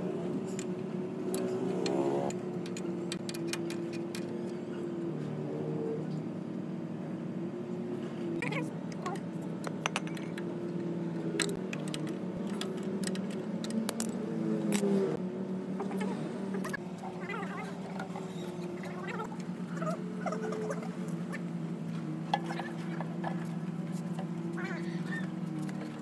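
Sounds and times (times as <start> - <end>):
spanner clinking on metal bolts: 0.4 - 4.6, 9.0 - 10.5, 11.3 - 15.0.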